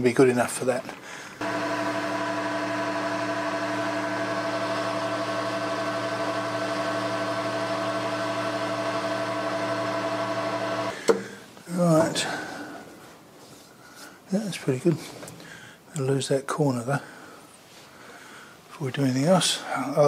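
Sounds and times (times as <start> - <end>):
metal lathe whining: 1.4 - 11.0.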